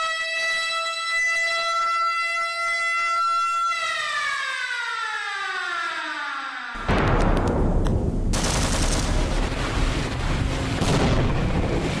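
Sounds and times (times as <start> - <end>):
air-raid siren winding down: 0.0 - 6.9
rapid gunfire: 6.8 - 11.4
explosion blasts: 6.8 - 12.0.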